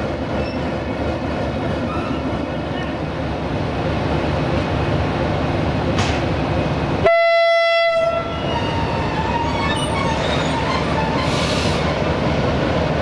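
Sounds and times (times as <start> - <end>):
diesel locomotive idling: 0.0 - 13.0
locomotive horn blast: 7.0 - 9.5.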